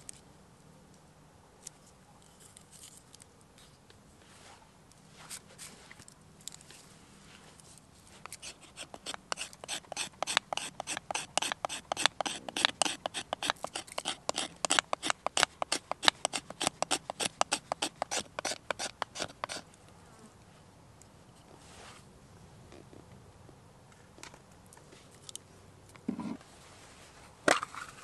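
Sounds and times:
knife scraping wood: 0:08.2 - 0:19.7.

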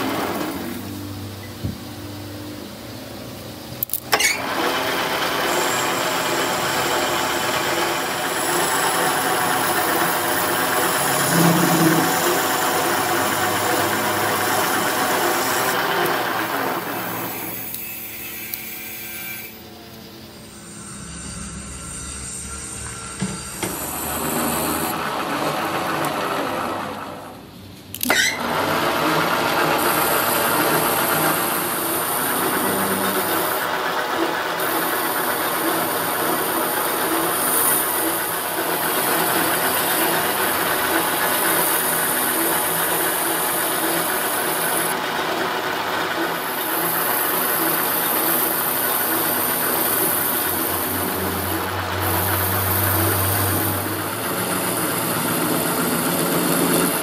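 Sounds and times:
high cutting hiss: 0:00.0 - 0:25.0, 0:29.7 - 0:33.8, 0:34.5 - 0:45.0, 0:46.1 - 0:57.0
metal lathe running: 0:00.0 - 0:57.0
sharp click: 0:03.8 - 0:04.4.

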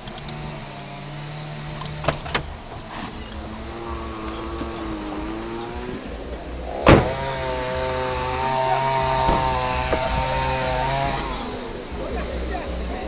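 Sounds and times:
engine running: 0:00.0 - 0:13.0
sharp knock: 0:06.8 - 0:07.2.

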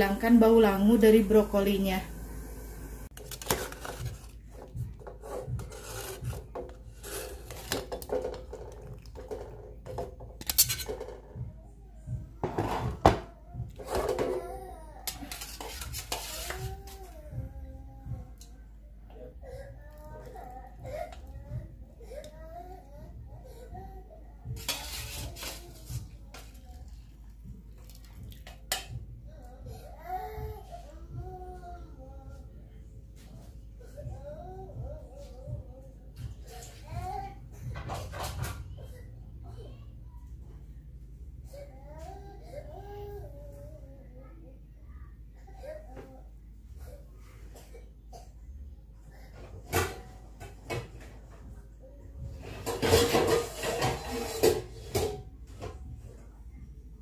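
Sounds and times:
dishes and utensils clinking: 0:05.0 - 0:11.3, 0:24.6 - 0:26.6, 0:28.3 - 0:29.0, 0:52.4 - 0:55.8.

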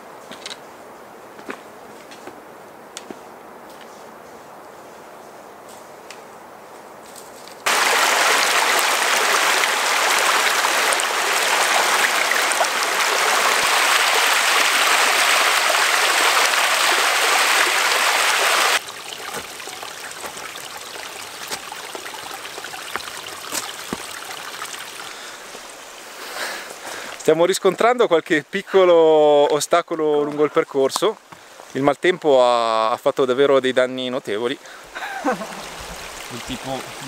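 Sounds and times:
footsteps on trail: 0:01.3 - 0:02.4, 0:03.0 - 0:07.8, 0:18.8 - 0:25.8, 0:31.3 - 0:31.6
stream splashing over rocks: 0:07.6 - 0:27.8, 0:35.2 - 0:37.0.

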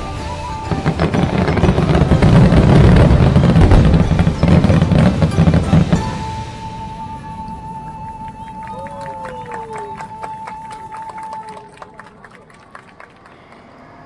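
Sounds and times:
fireworks booms and crackling: 0:00.0 - 0:08.5
music: 0:00.0 - 0:14.0.

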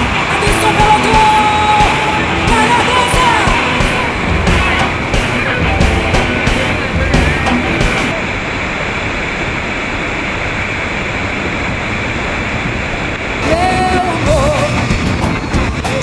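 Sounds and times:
music with singing voice: 0:00.0 - 0:08.2, 0:13.4 - 0:16.0
waterfall rushing: 0:00.0 - 0:16.0.

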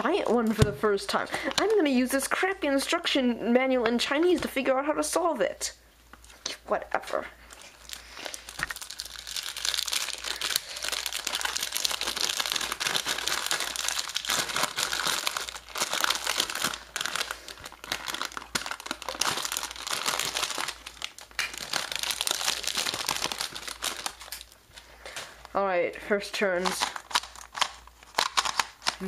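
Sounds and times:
plastic wrapping crinkling: 0:00.0 - 0:02.3, 0:07.4 - 0:25.6, 0:26.6 - 0:29.0.

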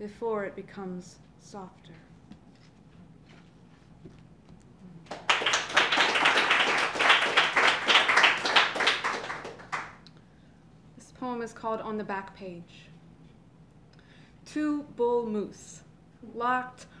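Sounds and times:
small audience applauding: 0:05.0 - 0:10.0.

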